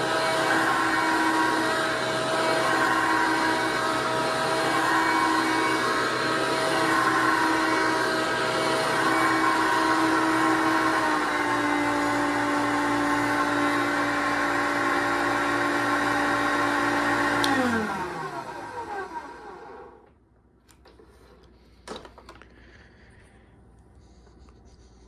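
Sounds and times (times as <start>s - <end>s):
vacuum cleaner running: 0.0s - 20.1s.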